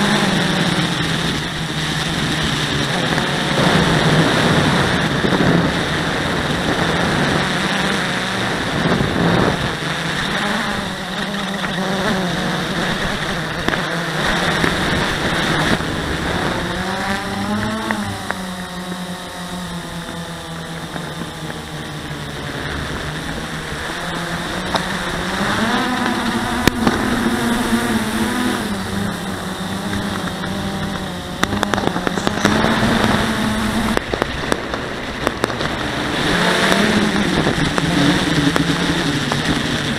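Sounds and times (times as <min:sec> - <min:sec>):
quadcopter motors whirring: 0:00.0 - 0:39.9
sharp clicks: 0:28.5 - 0:39.9.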